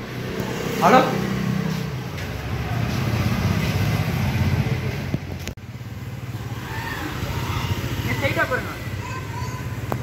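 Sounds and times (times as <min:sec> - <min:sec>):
street noise: 0:00.0 - 0:10.0
vehicle engine rumbling: 0:00.0 - 0:10.0.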